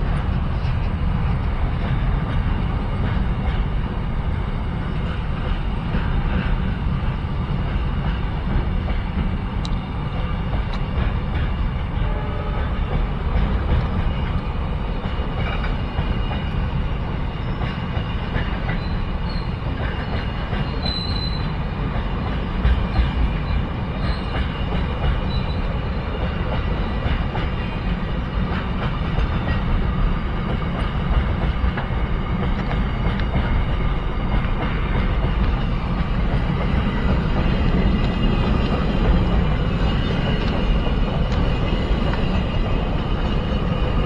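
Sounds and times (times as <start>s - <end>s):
freight train rumbling past: 0.0s - 44.0s
high wheel squeal: 18.7s - 21.6s, 22.8s - 25.8s.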